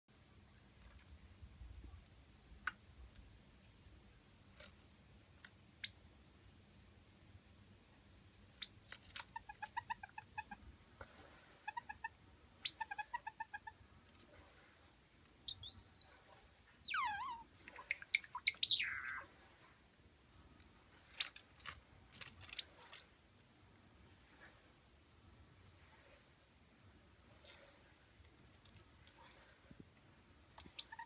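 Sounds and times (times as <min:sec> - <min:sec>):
sparrow calling: 0:15.4 - 0:19.3.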